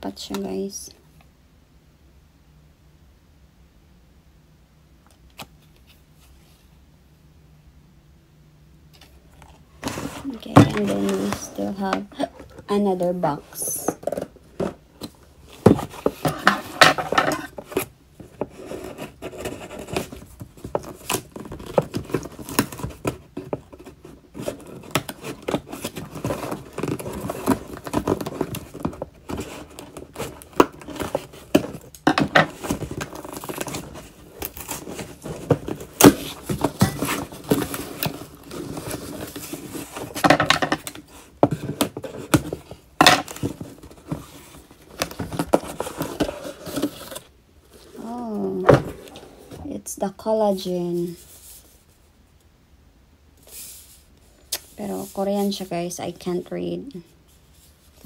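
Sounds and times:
knocks and crinkles: 9.0 - 49.8
cardboard flaps scraping: 9.8 - 13.3, 15.5 - 49.7.

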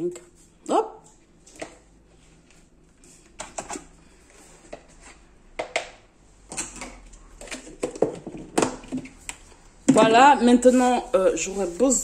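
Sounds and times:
plastic tubs and lid clicking: 5.6 - 10.1.

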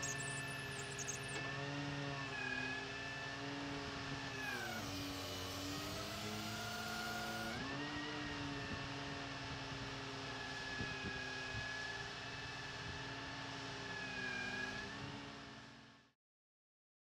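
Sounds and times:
whining tone: 0.0 - 1.6
drill rig engine and hydraulics: 0.0 - 15.9.

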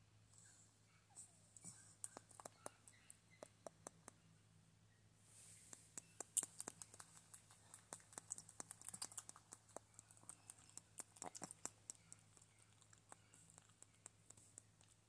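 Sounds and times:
small clicks and crackles in hair: 2.0 - 4.2, 5.7 - 15.0.

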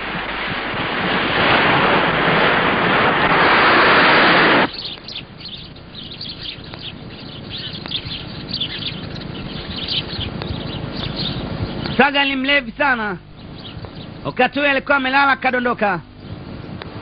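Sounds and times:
ocean waves on shore: 0.0 - 14.3
birds chirping: 4.4 - 17.0.

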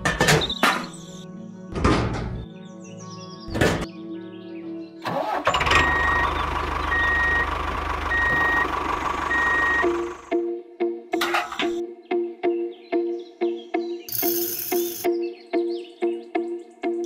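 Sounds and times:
music: 0.0 - 7.5, 9.3 - 17.0
tractor engine running: 5.1 - 10.4
reversing alarm beeps: 5.7 - 8.7, 9.3 - 10.1.

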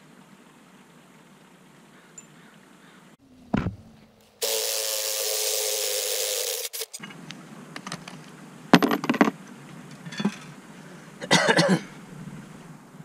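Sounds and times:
cordless drill running: 4.4 - 7.0.

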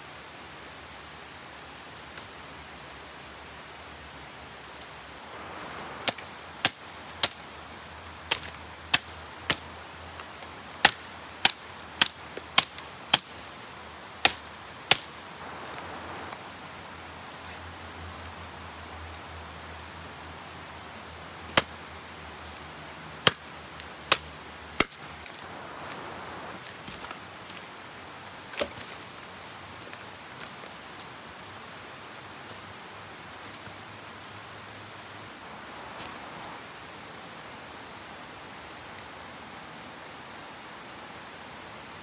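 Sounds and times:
sticks snapping: 5.7 - 7.6, 8.3 - 16.4, 23.3 - 26.1.

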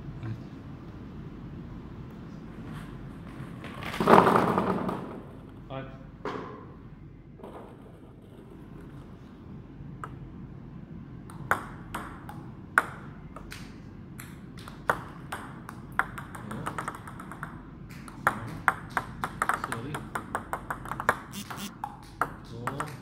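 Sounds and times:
table tennis ball hitting paddles: 11.3 - 23.0
ball bouncing on table: 14.6 - 23.0.

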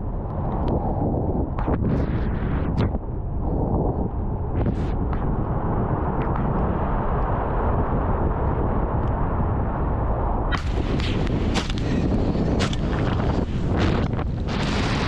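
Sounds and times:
vehicle engine and wind buffeting: 0.0 - 15.0
shotgun shot: 10.5 - 12.0.

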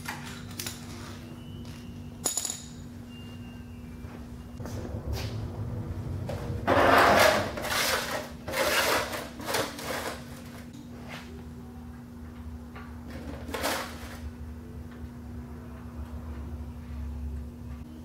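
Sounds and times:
metal pan scraping across floor: 6.7 - 10.2.

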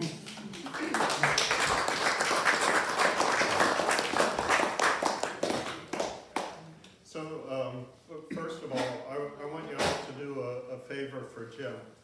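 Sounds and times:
group of people applauding: 0.0 - 6.6.

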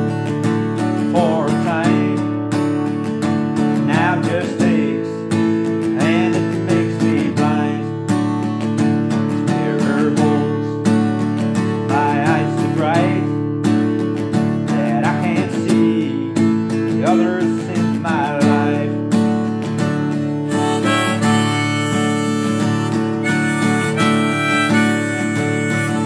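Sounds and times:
acoustic guitar strumming: 0.0 - 26.0
harmonica: 20.2 - 26.0.

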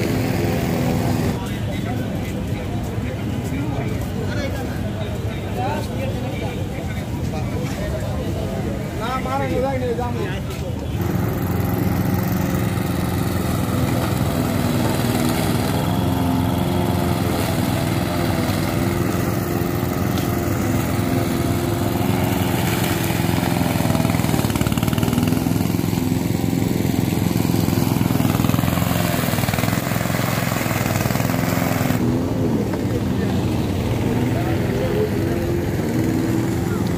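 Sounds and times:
lawn mower cutting grass: 0.0 - 1.5, 11.0 - 36.9.

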